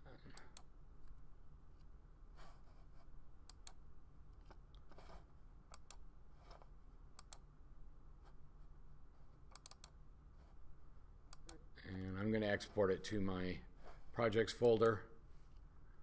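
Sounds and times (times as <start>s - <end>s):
low steady hum: 0.0s - 16.0s
computer mouse clicks: 3.4s - 3.8s, 5.7s - 6.0s, 7.2s - 7.5s, 9.5s - 10.0s, 11.3s - 11.6s.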